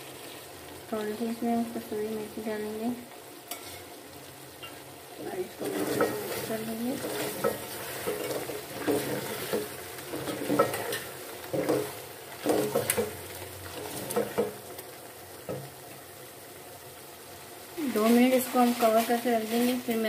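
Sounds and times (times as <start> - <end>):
frying sizzle: 0.0 - 20.0
spoon scraping and knocking pot: 5.6 - 13.1.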